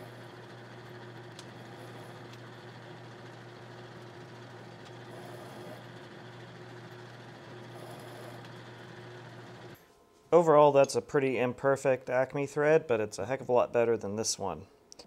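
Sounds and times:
metal lathe cutting thread: 0.0s - 9.8s.

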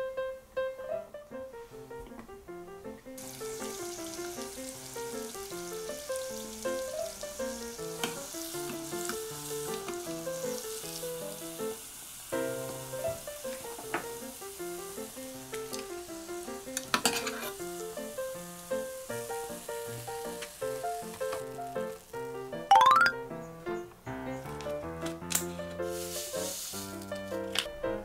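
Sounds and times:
hot oil sizzling: 3.1s - 23.0s, 25.3s - 27.7s
light music with plucked notes: 22.7s - 23.4s.

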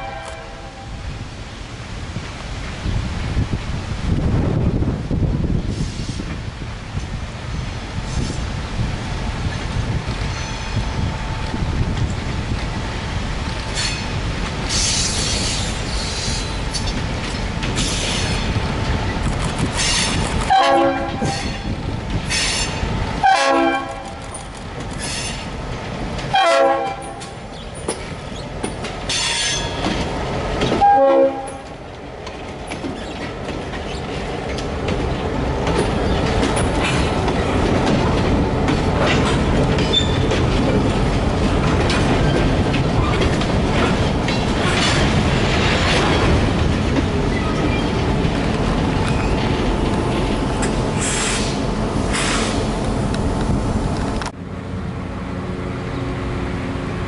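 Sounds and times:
locomotive air horn blasts: 0.0s - 0.9s, 20.5s - 21.6s, 23.2s - 24.2s, 26.3s - 27.2s, 30.8s - 31.7s
diesel locomotive rumble: 0.0s - 57.0s
train wheels clacking on rails: 9.4s - 54.4s.

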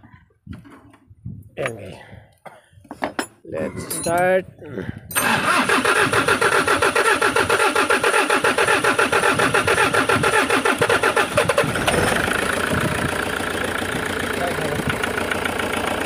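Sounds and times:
diesel engine cranking and idling: 5.0s - 16.0s.

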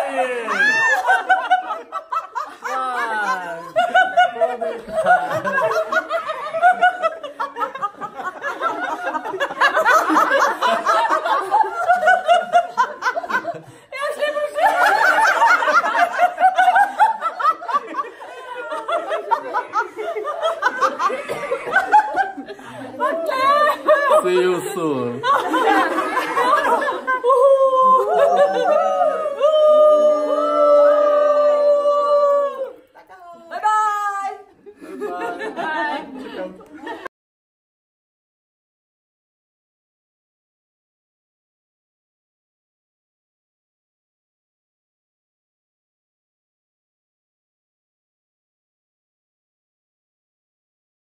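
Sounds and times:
group of people laughing: 0.0s - 37.1s
man calling out: 24.2s - 25.2s.

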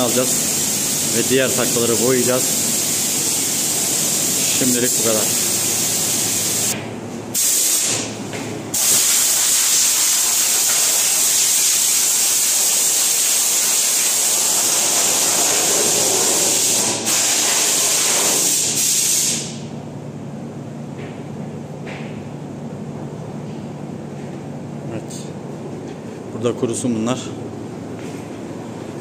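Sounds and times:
compressed air hissing: 0.0s - 6.8s, 7.4s - 8.1s, 8.7s - 19.6s.

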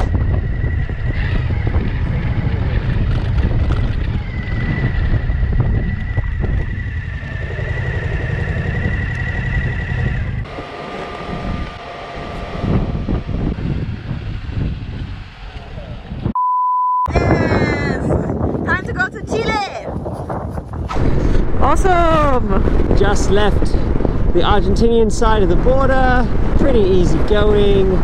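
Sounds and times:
steady high whine: 0.0s - 16.4s, 20.9s - 28.0s
wind rushing over microphone: 0.0s - 16.4s, 17.1s - 28.0s.

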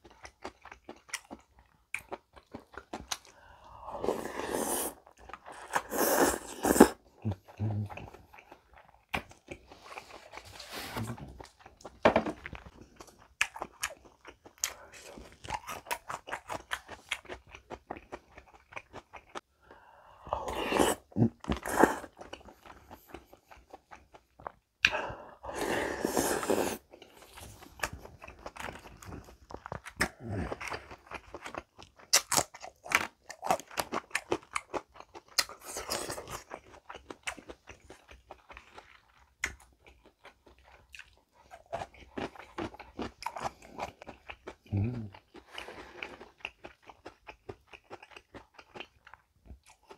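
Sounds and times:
chewing and crunching food: 0.0s - 49.9s.

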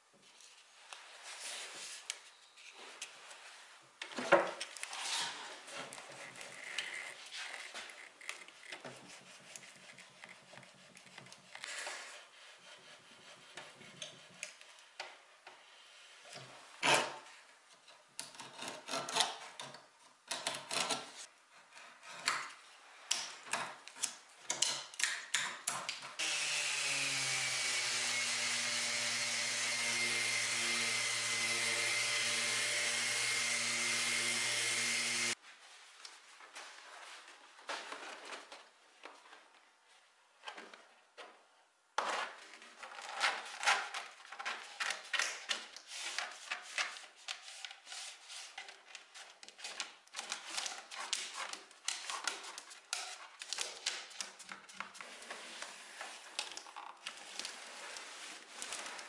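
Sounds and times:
hand blade scraping wood: 4.8s - 14.8s, 18.2s - 19.6s
power tool high whine: 26.2s - 35.4s.

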